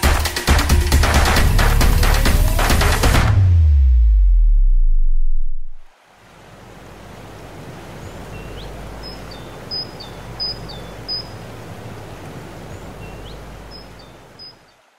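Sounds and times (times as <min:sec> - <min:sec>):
small birds chirping: 0:07.8 - 0:14.9.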